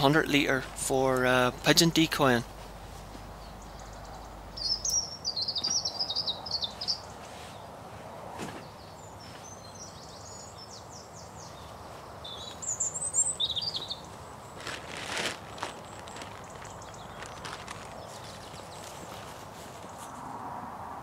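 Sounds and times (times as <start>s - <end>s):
outdoor background hiss: 0.0s - 21.0s
songbird twittering: 3.3s - 7.6s, 8.6s - 14.6s, 15.7s - 19.2s.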